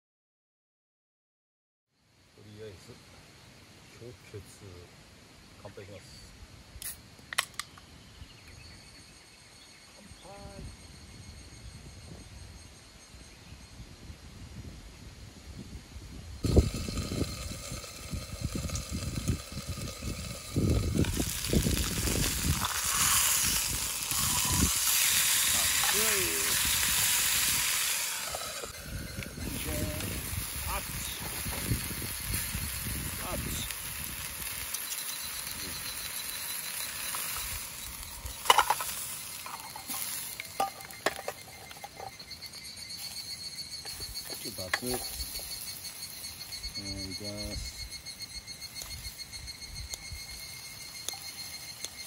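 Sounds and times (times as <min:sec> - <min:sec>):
chicken frying in a pan: 0:16.4 - 0:41.5.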